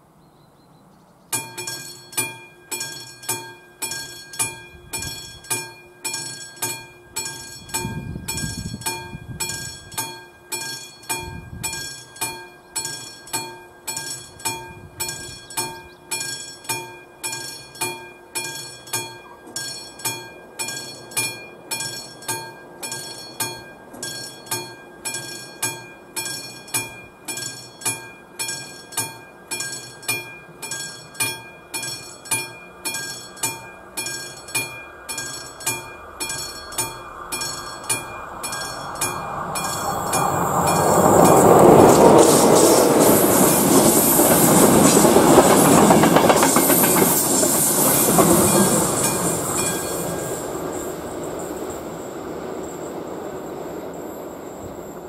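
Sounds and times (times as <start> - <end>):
level crossing bell ringing: 1.4 - 46.5.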